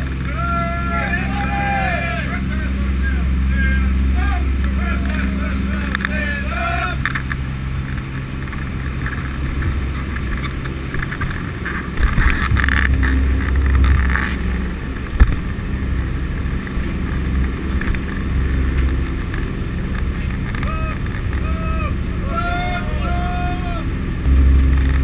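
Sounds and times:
aircraft engines droning: 0.0 - 25.0
rush of noise: 0.0 - 25.0.

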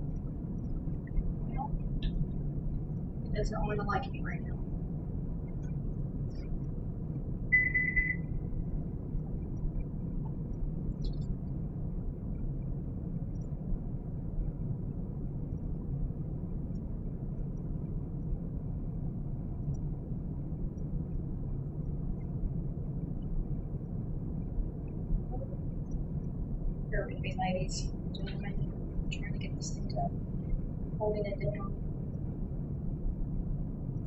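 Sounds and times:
steady low hum: 0.0 - 34.0
short high electronic beep: 7.6 - 8.3.

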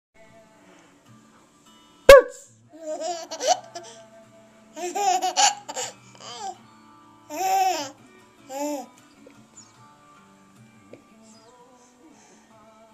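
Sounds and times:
baby giggling: 2.8 - 4.0, 4.8 - 6.6, 7.3 - 8.9.

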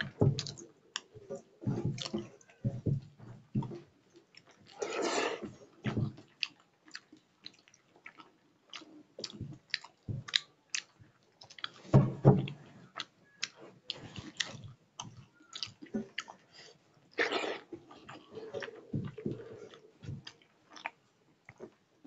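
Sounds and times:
man chewing with mouth open: 0.0 - 21.8.

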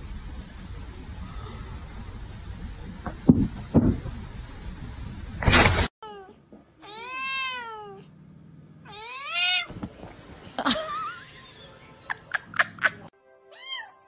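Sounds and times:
cat meowing: 6.0 - 8.1, 8.9 - 9.7, 13.5 - 14.0.

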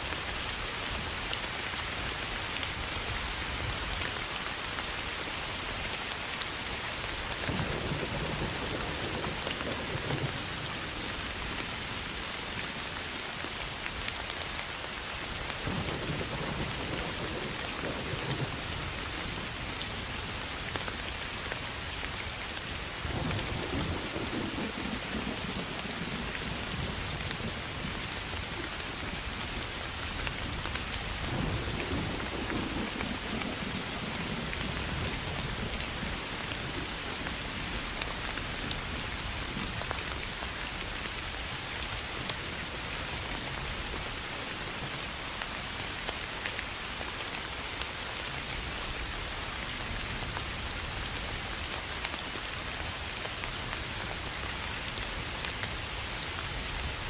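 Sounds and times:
soft rain on grass: 0.0 - 57.0
low rolls of thunder: 7.5 - 11.6, 15.6 - 19.6, 23.0 - 29.7, 30.4 - 37.8.

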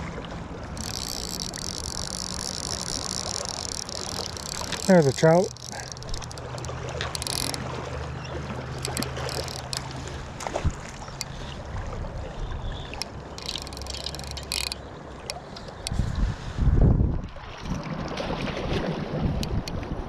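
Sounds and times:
fly reel drag buzzing: 0.7 - 7.8, 8.7 - 10.2, 13.0 - 16.0.

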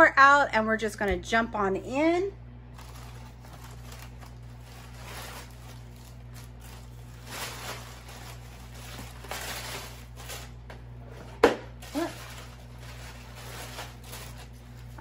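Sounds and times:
plastic packages rustling: 2.7 - 10.6, 11.8 - 15.0.

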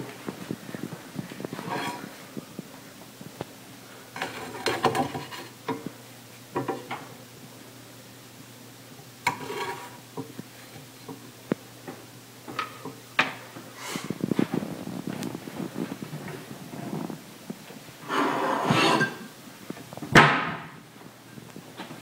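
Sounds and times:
faint steady hum: 0.0 - 22.0
spatula scraping metal frying pan: 1.6 - 2.1, 4.2 - 5.6, 9.3 - 10.0, 18.0 - 19.3
cookware clatter: 4.2 - 5.9, 18.5 - 19.3.

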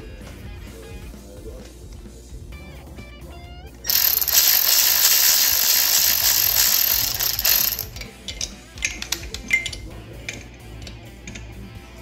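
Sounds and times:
cordless electric ratchet running: 3.9 - 8.0
sharp ratchet clicks: 3.9 - 8.1.

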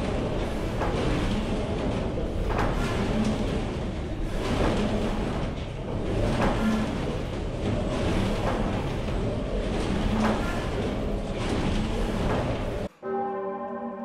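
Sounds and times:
large church bells ringing: 12.9 - 14.0.

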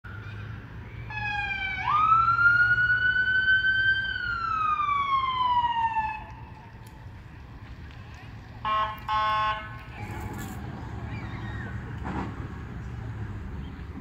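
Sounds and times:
emergency siren wailing: 0.1 - 6.8.

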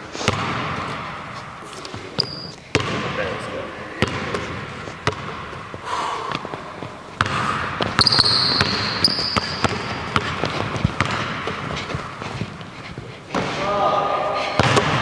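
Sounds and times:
sneakers squeaking: 0.0 - 15.0
basketball bouncing on hardwood: 2.2 - 3.1, 5.0 - 5.5, 7.2 - 12.5.

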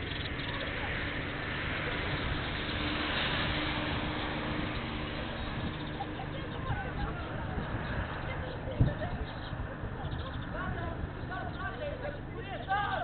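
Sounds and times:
steady low hum: 0.0 - 13.0
car passing by: 0.7 - 8.5.

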